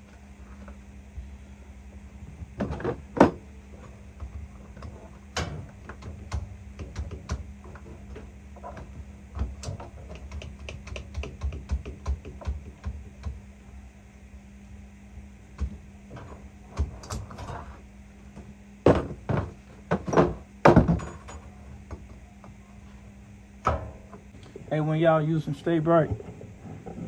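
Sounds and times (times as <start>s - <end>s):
steady low hum: 0.0s - 27.0s
tools and metal parts clinking: 20.0s - 21.6s.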